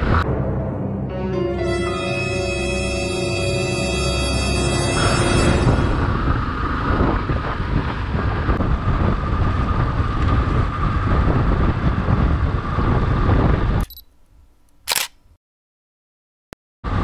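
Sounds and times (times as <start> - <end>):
wind rushing over microphone: 0.0 - 0.3, 5.0 - 14.0
motorcycle engine cruising: 6.0 - 13.8.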